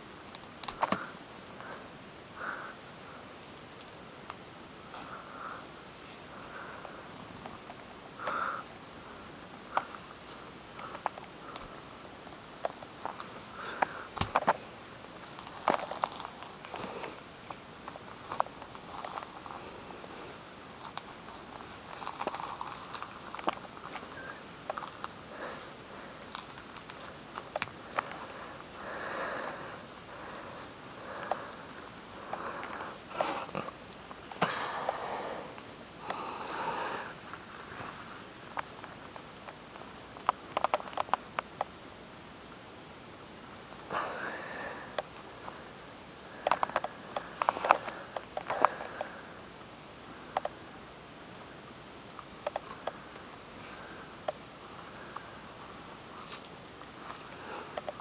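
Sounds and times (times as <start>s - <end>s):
small snaps and clicks: 0.2s - 1.1s, 3.4s - 4.4s, 10.8s - 14.6s, 26.3s - 28.2s, 38.5s - 41.8s, 44.9s - 45.6s, 46.4s - 49.2s, 50.3s - 50.6s, 52.0s - 53.5s, 57.2s - 58.0s
nasal breathing: 0.8s - 3.3s, 4.9s - 7.2s, 8.2s - 11.7s, 13.4s - 14.5s, 22.0s - 27.0s, 27.8s - 38.2s, 43.9s - 49.4s, 57.1s - 58.0s.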